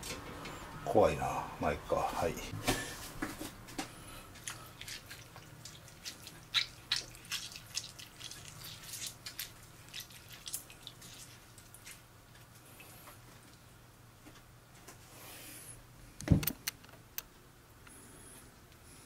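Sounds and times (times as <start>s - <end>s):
water splashing and dripping into bowl: 4.4s - 12.0s.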